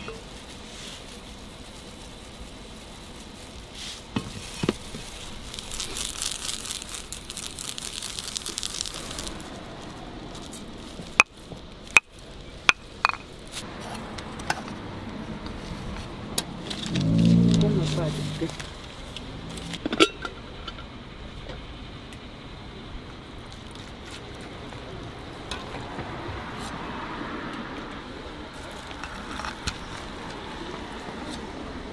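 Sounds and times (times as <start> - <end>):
steady background hiss: 0.0 - 31.9
utensils clattering on metal bowls: 19.8 - 20.8.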